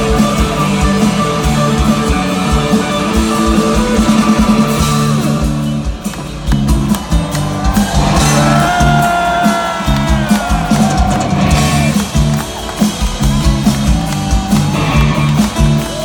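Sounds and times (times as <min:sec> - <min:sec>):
electric guitars ringing: 0:00.0 - 0:13.9
bass guitar: 0:00.0 - 0:16.0
drum hits: 0:03.8 - 0:15.7.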